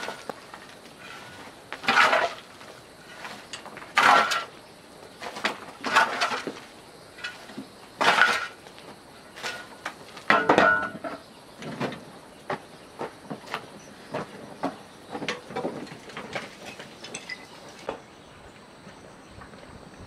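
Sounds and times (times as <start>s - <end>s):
metal tool scraping: 1.0s - 4.5s, 5.4s - 6.6s.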